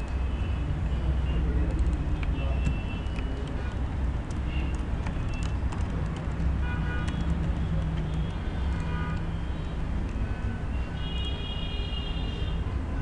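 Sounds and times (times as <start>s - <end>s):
computer keyboard typing: 0.0s - 10.3s.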